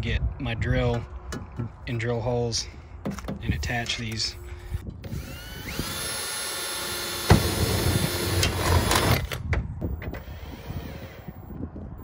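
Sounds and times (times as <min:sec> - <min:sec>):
cordless drill boring metal: 0:05.0 - 0:09.3, 0:10.2 - 0:11.4.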